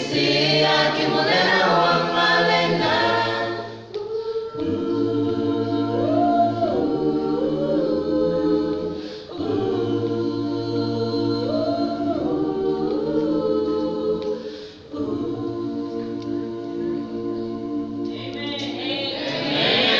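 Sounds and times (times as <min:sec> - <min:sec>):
mixed choir singing gospel: 0:00.0 - 0:19.9.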